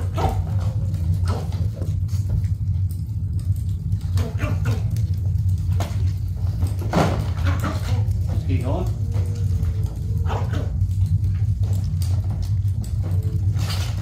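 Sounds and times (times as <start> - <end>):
steady low hum: 0.0 - 14.0
dogs whining and whimpering: 9.1 - 10.9.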